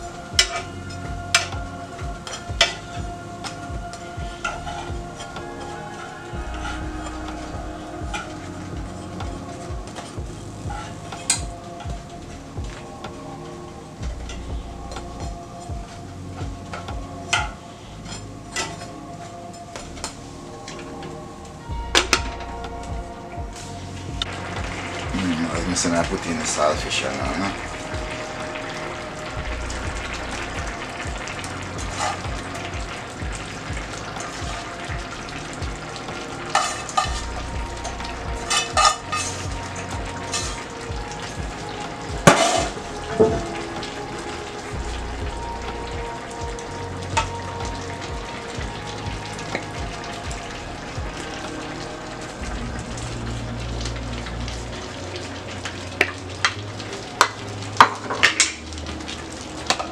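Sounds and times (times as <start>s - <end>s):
food sizzling in frying pans: 0.0s - 59.9s
utensils clinking against pans: 17.3s - 18.9s, 36.5s - 37.2s, 38.5s - 39.5s, 42.2s - 43.6s.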